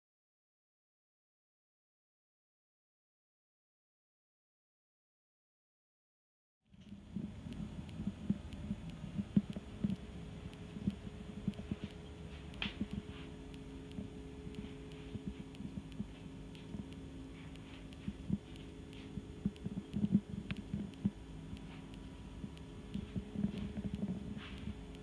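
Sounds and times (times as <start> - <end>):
steady low hum: 6.7 - 25.0.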